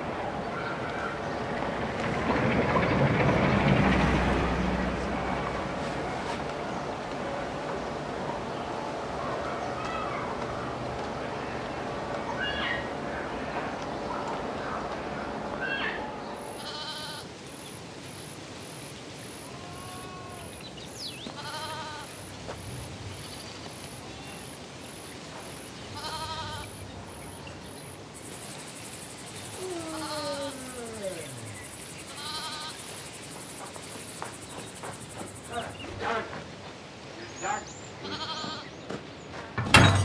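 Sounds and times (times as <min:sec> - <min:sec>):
crickets chirping: 0:10.4 - 0:38.4
goats bleating: 0:16.4 - 0:17.3, 0:19.4 - 0:20.6, 0:21.2 - 0:22.3, 0:26.0 - 0:26.8, 0:29.6 - 0:32.9, 0:38.0 - 0:38.7.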